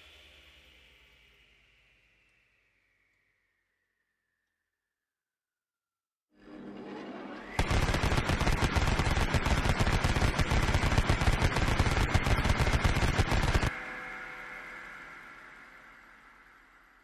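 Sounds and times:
machine gun whine: 0:07.5 - 0:13.8
rotary machine gun firing: 0:07.6 - 0:13.7.

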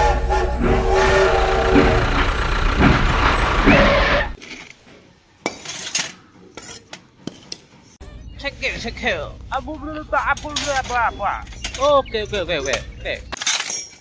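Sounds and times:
toy train whistle: 0:00.0 - 0:02.3
small chain clinking: 0:13.4 - 0:14.0.

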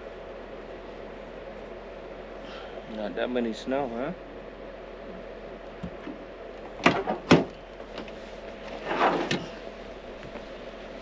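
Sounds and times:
tailgate clunks: 0:06.8 - 0:08.1
tailgate scraping ending in a click: 0:06.9 - 0:09.5.

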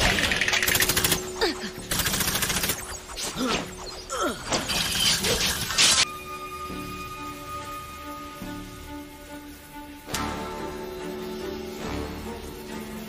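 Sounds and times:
rapid crackling: 0:00.0 - 0:06.1.

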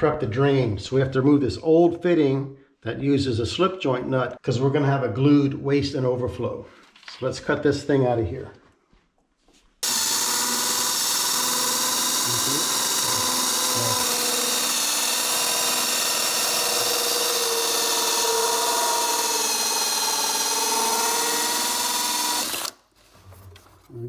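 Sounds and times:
drill cutting plastic pipe: 0:09.8 - 0:22.8.

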